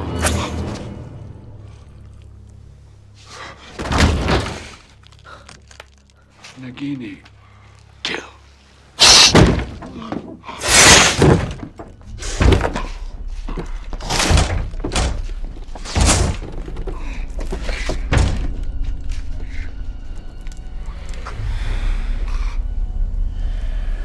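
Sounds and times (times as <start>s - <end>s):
low rumble: 18.5s - 24.0s.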